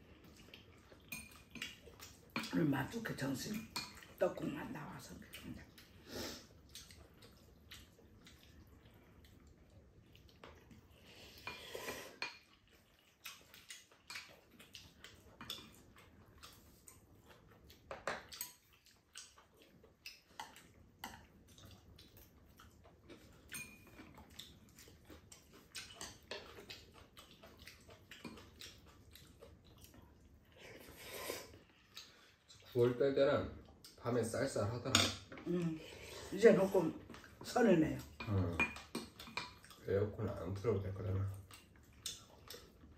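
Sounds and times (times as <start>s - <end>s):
chopsticks and spoons clinking on bowls: 0.8s - 4.2s, 23.1s - 24.1s, 38.0s - 39.6s.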